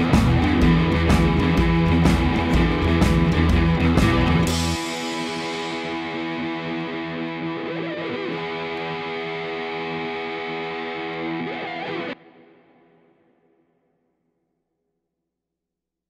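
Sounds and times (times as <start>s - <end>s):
distorted electric guitar chords: 0.0s - 13.6s.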